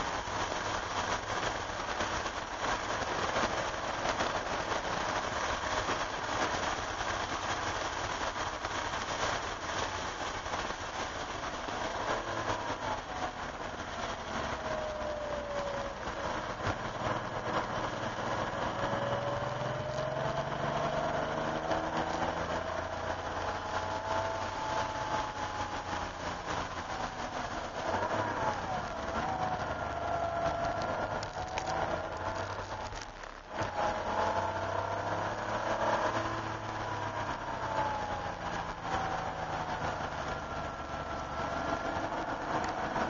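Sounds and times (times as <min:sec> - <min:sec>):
car engine: 0:00.0 - 0:43.0.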